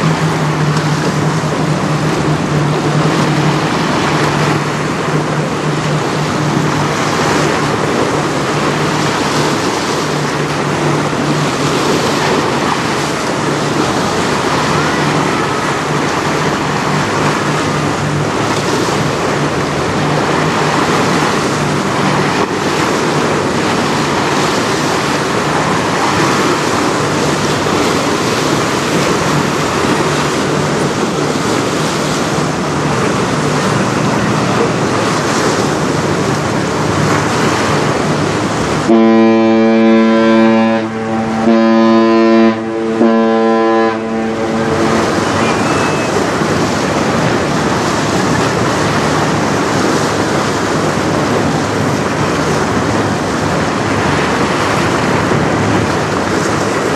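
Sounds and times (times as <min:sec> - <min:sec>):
churning water: 0:00.0 - 0:56.9
ship horn blasts: 0:00.0 - 0:56.9.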